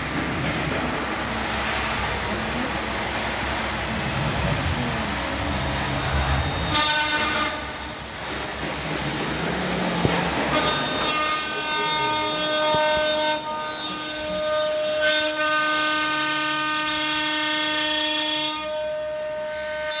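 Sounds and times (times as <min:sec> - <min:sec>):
milling spindle high-pitched whine: 0:10.0 - 0:15.5.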